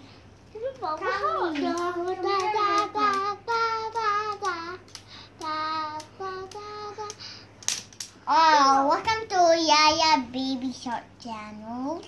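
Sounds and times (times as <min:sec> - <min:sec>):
girl singing held notes: 0:00.6 - 0:07.4.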